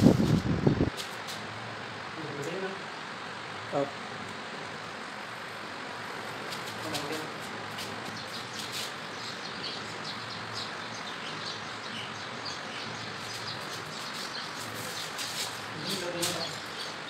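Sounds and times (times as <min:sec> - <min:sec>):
background hiss: 0:00.0 - 0:17.0
small birds chirping: 0:06.3 - 0:17.0.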